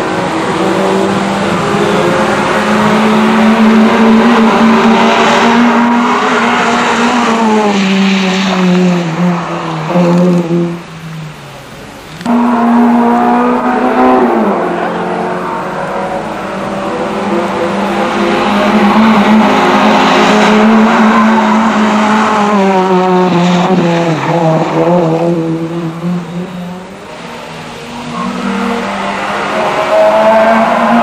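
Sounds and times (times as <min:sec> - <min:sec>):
second car engine: 0:00.0 - 0:31.0
rally car engine passing by: 0:12.3 - 0:31.0.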